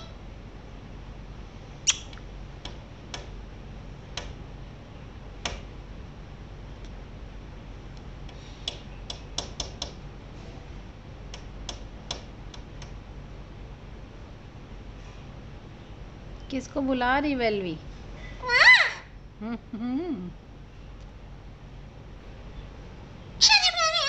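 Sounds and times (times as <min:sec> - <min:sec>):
parrot beak clicks and taps: 0:08.7 - 0:10.0.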